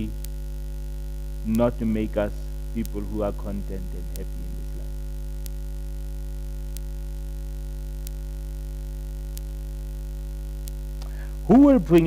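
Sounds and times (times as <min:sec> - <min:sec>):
electrical mains hum: 0:00.0 - 0:12.0
faint clicks: 0:05.4 - 0:05.6, 0:06.7 - 0:07.0, 0:08.0 - 0:08.3, 0:09.2 - 0:09.6, 0:10.5 - 0:11.3.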